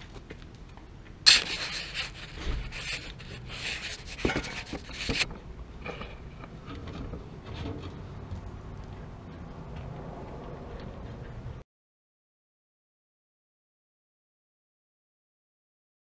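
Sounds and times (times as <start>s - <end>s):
hissy rubbing and scraping: 1.3s - 5.3s.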